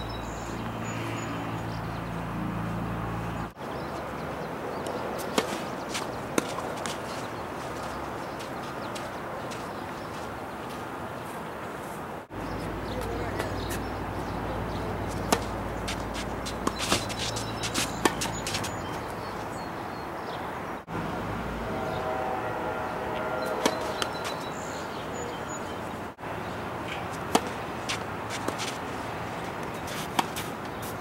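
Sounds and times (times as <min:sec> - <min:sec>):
tennis ball struck by racquets: 0:05.2 - 0:07.0, 0:14.7 - 0:18.8, 0:26.9 - 0:28.8, 0:29.6 - 0:30.9.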